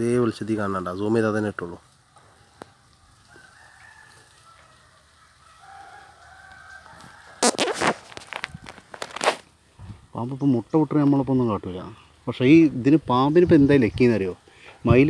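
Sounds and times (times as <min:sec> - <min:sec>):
rooster crowing: 0:03.2 - 0:09.2
rustling on microphone: 0:06.9 - 0:10.1.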